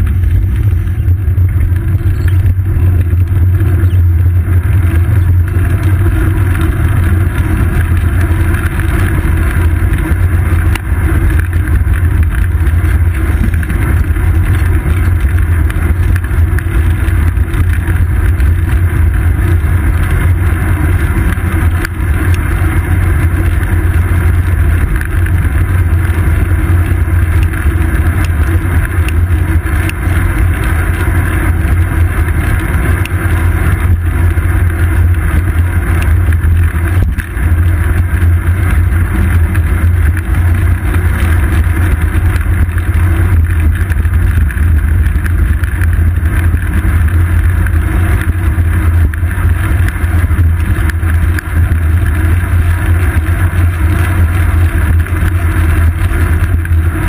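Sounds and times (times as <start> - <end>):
road vibration rumble: 0.0 - 57.0.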